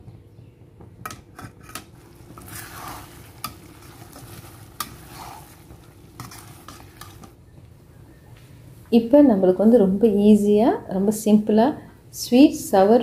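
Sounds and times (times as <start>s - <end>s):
light sizzle: 1.1s - 7.5s
metal spoon scraping pan: 1.3s - 7.3s.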